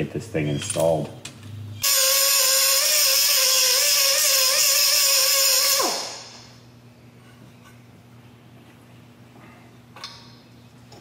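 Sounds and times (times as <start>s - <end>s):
pneumatic cut-off tool whining: 1.8s - 6.5s.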